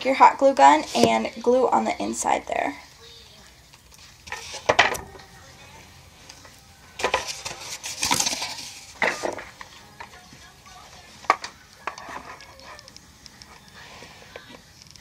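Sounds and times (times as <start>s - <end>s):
rustling scrapes: 4.0s - 4.7s, 7.0s - 9.6s.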